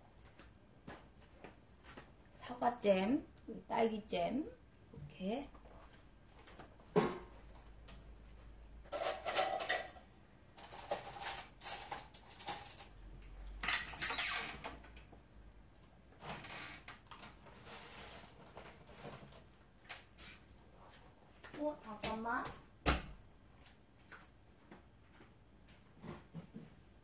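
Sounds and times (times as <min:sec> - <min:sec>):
jars and containers clattering: 0:08.9 - 0:10.0.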